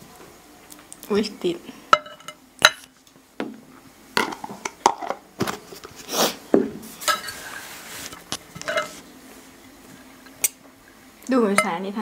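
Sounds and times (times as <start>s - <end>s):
cutlery clinking on plates: 7.0s - 7.4s, 8.6s - 9.0s.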